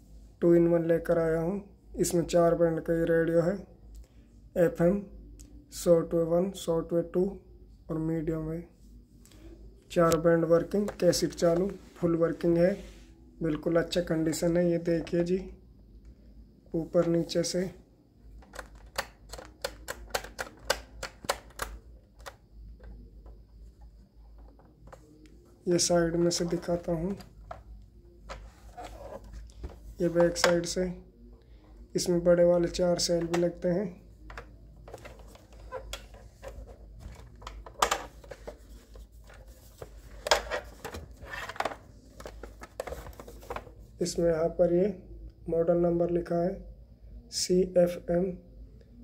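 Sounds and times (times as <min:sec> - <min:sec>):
plastic radio handling taps and rubbing: 0:10.0 - 0:12.0, 0:18.4 - 0:23.4, 0:24.3 - 0:25.1, 0:26.1 - 0:27.7, 0:28.3 - 0:30.8, 0:34.2 - 0:43.7.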